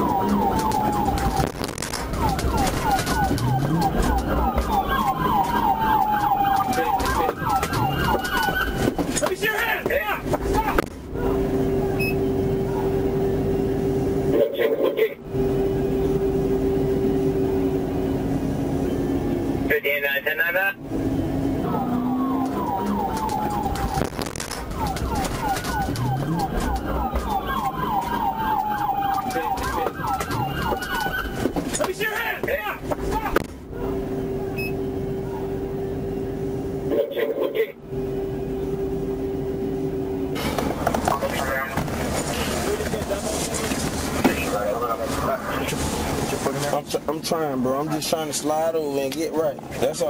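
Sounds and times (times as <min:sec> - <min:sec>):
police siren fast yelp: 0:00.0 - 0:13.4, 0:21.6 - 0:35.9
police siren slow wail: 0:00.0 - 0:14.6, 0:20.8 - 0:37.2
moving car rumble: 0:00.0 - 0:50.0.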